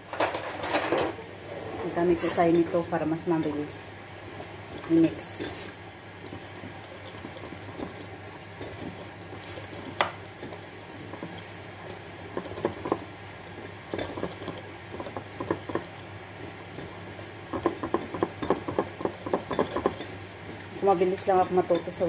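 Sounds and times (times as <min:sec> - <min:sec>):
whisk beating batter: 0:02.4 - 0:22.0
whisk clicking on glass: 0:09.9 - 0:16.1, 0:16.7 - 0:20.1.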